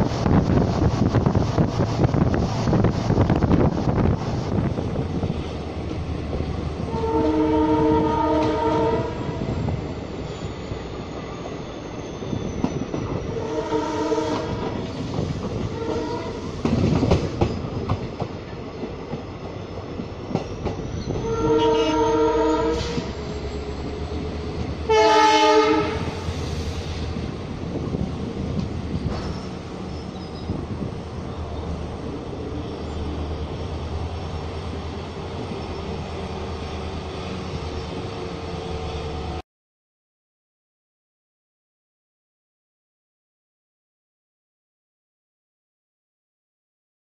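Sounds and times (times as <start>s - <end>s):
train rumbling: 0.0s - 39.4s
locomotive air horn blasts: 6.8s - 9.4s, 13.4s - 14.8s, 15.7s - 16.5s, 21.2s - 23.2s, 24.9s - 26.3s.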